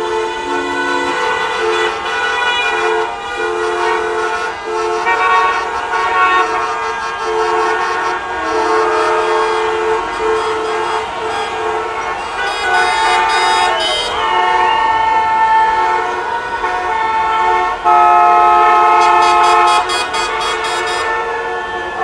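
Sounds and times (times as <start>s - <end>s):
car horns honking: 0.0s - 22.0s
traffic noise: 0.0s - 22.0s.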